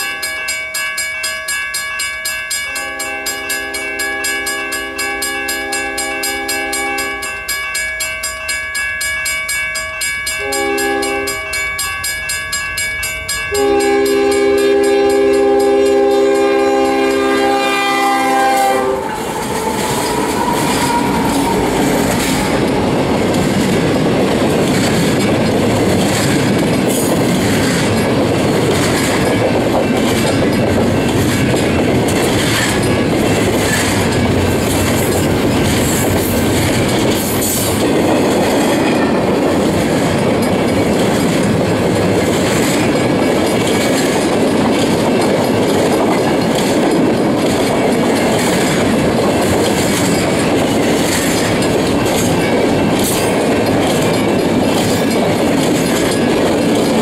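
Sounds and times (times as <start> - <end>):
diesel locomotive horn: 2.8 - 7.3, 10.4 - 11.5, 13.5 - 23.0
train rumbling by: 10.4 - 57.0.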